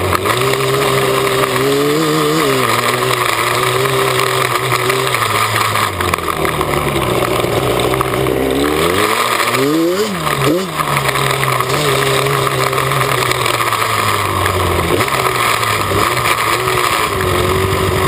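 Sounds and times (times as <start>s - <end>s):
two-stroke engine running: 0.0s - 18.0s.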